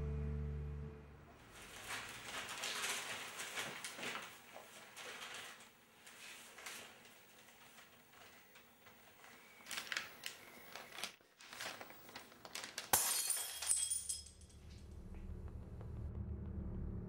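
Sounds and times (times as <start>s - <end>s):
low hum: 0.0s - 1.4s, 14.4s - 17.0s
paper rustling and crackling: 1.4s - 13.0s
glass breaking: 12.9s - 14.6s.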